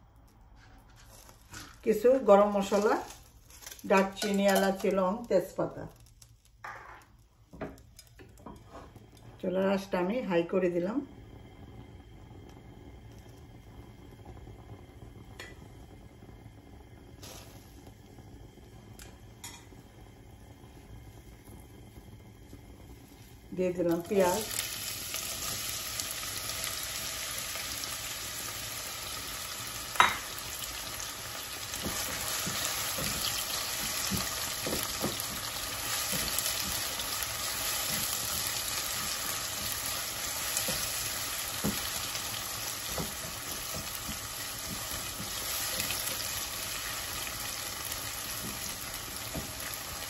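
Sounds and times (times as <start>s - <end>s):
onions sizzling in hot oil: 0.9s - 50.0s
spatula scraping and tapping: 31.8s - 36.9s, 42.9s - 46.2s.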